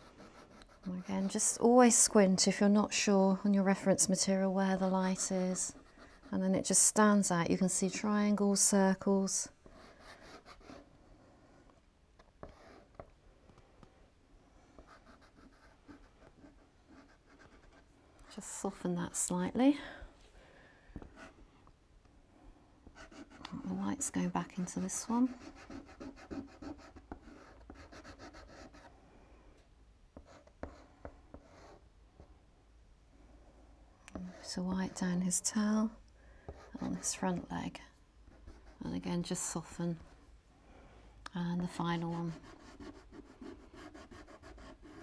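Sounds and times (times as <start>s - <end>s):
pastel scratching on paper: 42.0s - 45.0s.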